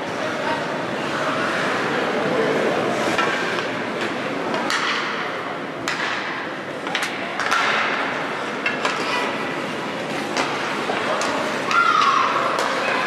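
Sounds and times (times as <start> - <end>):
echoing ice rink background noise: 0.0 - 13.0
hockey sticks clacking on ice: 3.0 - 13.0
skates scraping on ice: 5.9 - 13.0.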